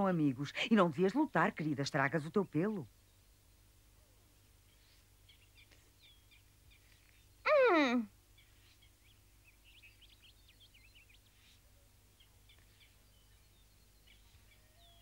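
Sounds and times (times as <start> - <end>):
faint birds chirping: 0.0 - 15.0
cartoon wolf vocal: 7.5 - 8.1.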